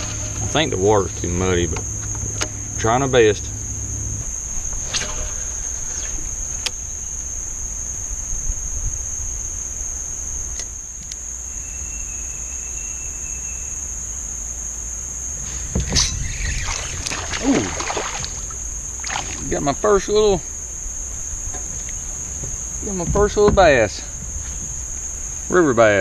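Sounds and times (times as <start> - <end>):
wind rumble on microphone: 0.0 - 10.6, 15.4 - 25.6
high-pitched insect drone: 0.0 - 26.0
knock and rustle: 21.5 - 24.8.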